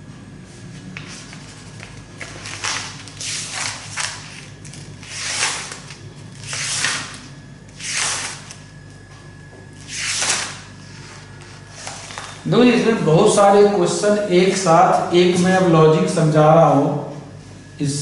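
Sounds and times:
steady low hum: 0.0 - 18.0
book pages turning: 0.8 - 8.6, 9.8 - 12.4.

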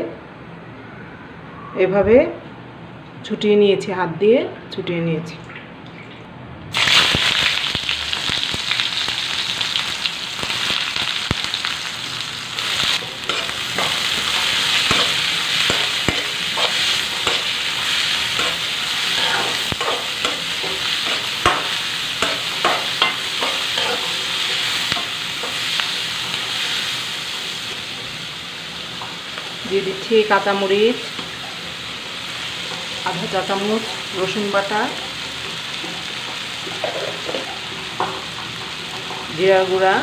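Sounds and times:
onions sizzling in oil: 6.7 - 40.0
spoon scraping and clacking on pan: 13.0 - 17.6, 18.3 - 25.9.

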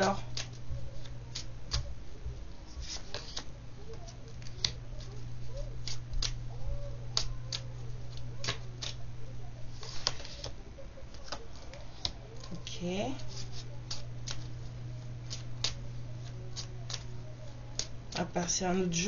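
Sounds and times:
cards clicking and snapping: 0.0 - 1.9, 2.7 - 5.2, 5.8 - 6.4, 7.0 - 9.0, 9.8 - 12.6, 13.2 - 14.6, 15.2 - 17.1
low steady hum: 0.0 - 19.0.

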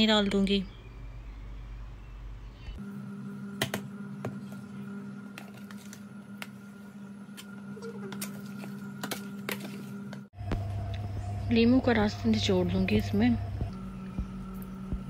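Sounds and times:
steady hum: 0.2 - 15.0.

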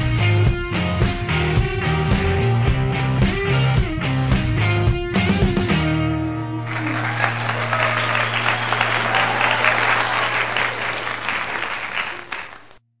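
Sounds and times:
crowd applauding and cheering: 6.6 - 12.8.

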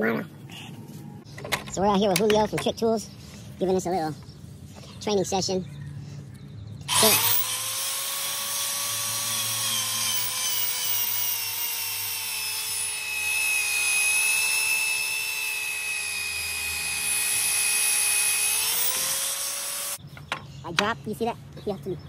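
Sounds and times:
motor whine of pipe cutter: 6.9 - 20.0.

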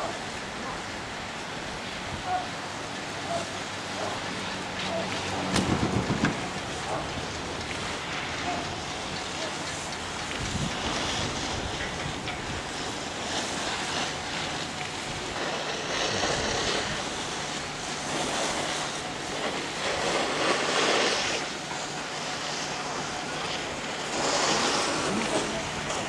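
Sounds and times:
wind on microphone: 5.0 - 8.9, 10.1 - 12.9.

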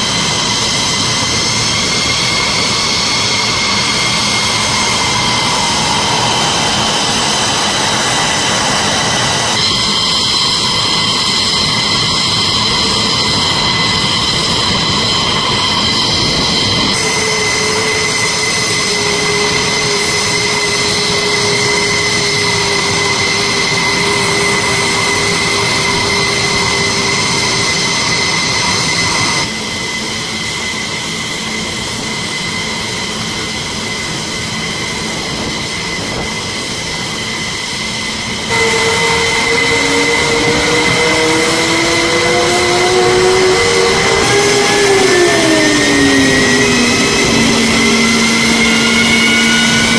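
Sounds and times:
jet engines whining: 0.0 - 49.9.

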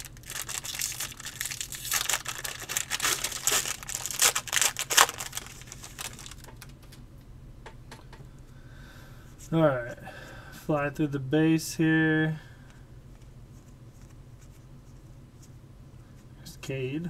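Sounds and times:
foil wrapper crinkling: 0.0 - 6.7.

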